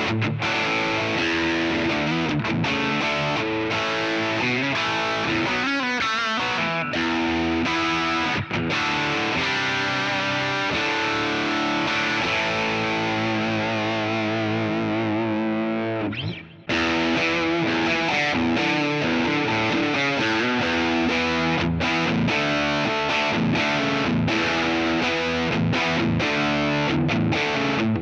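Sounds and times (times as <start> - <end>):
overdriven electric guitar: 0.0 - 28.0.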